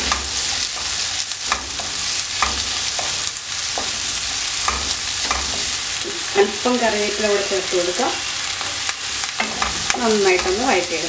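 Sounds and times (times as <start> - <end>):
spatula scraping a pan: 0.0 - 6.3
shallots sizzling in hot oil: 0.0 - 11.0.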